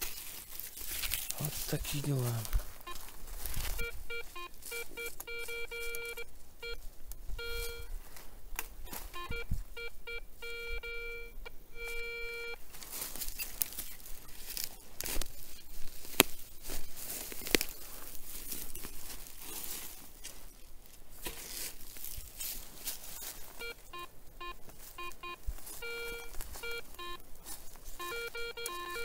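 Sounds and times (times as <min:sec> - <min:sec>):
rustling: 0:00.0 - 0:29.0
metal detector beeping: 0:01.4 - 0:08.0, 0:08.8 - 0:19.2, 0:22.8 - 0:29.0.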